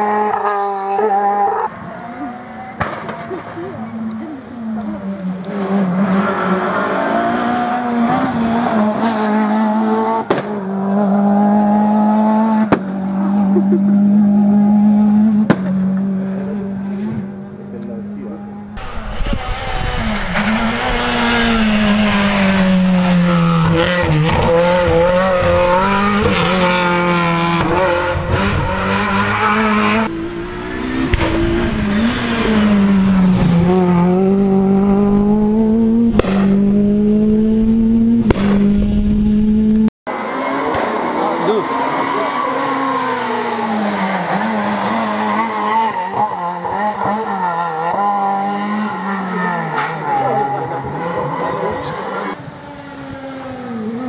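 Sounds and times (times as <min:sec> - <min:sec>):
rally car engines revving: 0:00.0 - 0:54.0
sharp cracks: 0:02.6 - 0:03.6.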